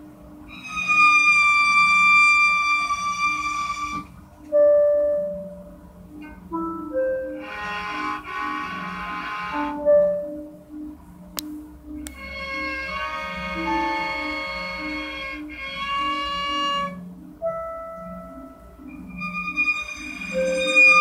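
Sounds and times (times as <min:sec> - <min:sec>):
low pulsing accompaniment: 0:00.0 - 0:21.0
violin playing: 0:12.1 - 0:17.0, 0:19.1 - 0:21.0.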